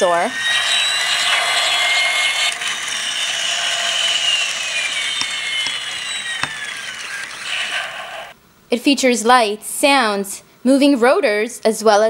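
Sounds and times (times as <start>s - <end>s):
toy helicopter rotors whirring: 0.0s - 8.3s
sharp clicks: 4.1s - 7.4s.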